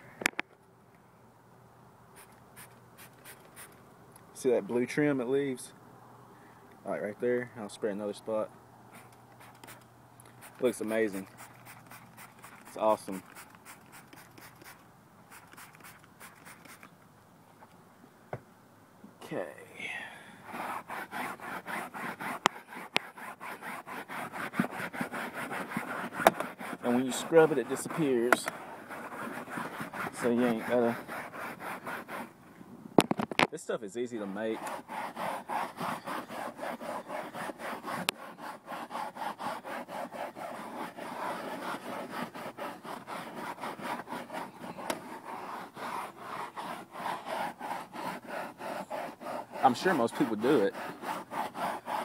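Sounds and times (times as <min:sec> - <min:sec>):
scrubber rubbing on cloth upholstery: 0:10.4 - 0:16.9, 0:20.4 - 0:32.4, 0:33.8 - 0:52.0.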